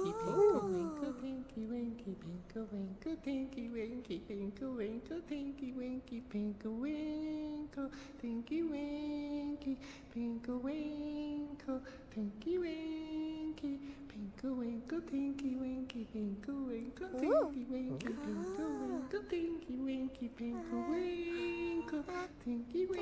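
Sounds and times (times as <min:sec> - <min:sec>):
children humming and singing: 0:00.0 - 0:01.5, 0:17.1 - 0:19.4, 0:20.4 - 0:23.0.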